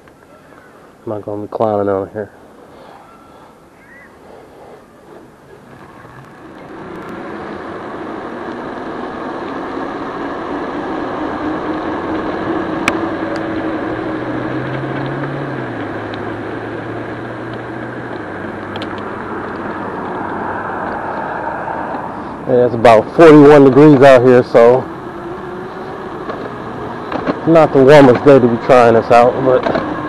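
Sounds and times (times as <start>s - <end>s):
e-bike tyre noise: 0.0s - 30.0s
low motor hum: 2.4s - 30.0s
wind rushing over microphone: 16.6s - 23.7s.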